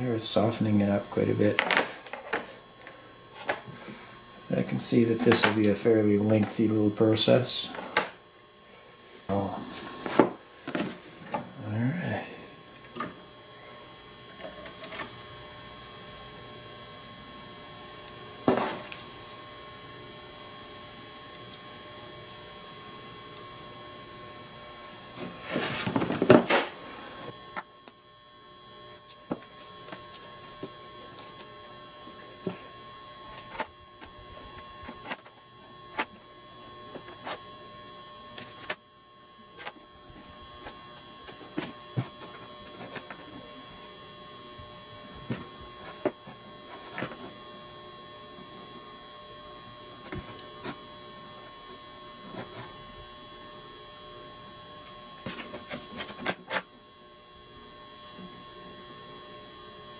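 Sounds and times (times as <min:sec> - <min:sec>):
steady electrical hum: 0:00.0 - 0:59.9.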